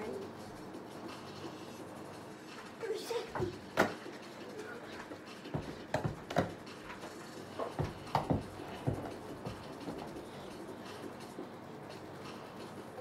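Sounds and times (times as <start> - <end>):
soft knocks and thumps: 7.6 - 10.1.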